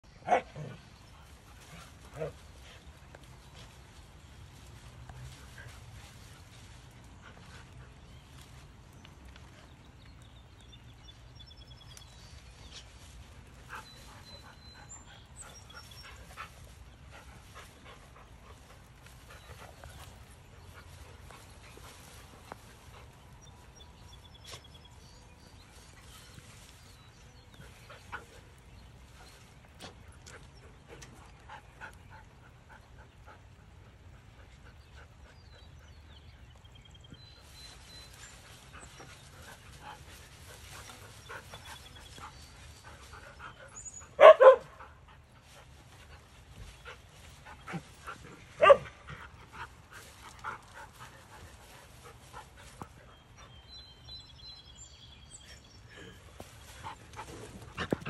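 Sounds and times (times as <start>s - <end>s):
dog barking: 0.2s - 0.7s, 44.2s - 44.8s, 48.6s - 48.9s.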